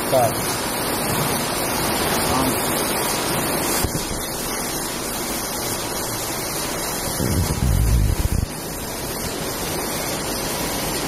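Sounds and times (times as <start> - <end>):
bottling machine running: 0.0 - 11.0.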